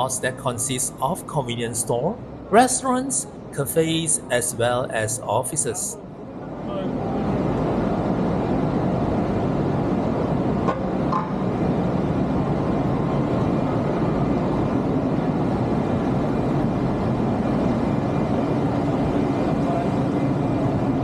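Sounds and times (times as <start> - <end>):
heavy street traffic rumble: 0.0 - 21.0.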